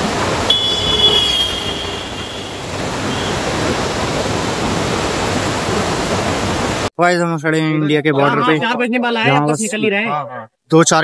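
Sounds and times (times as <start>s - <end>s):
river water rushing: 0.0s - 6.9s
brief high squeal: 0.5s - 3.4s.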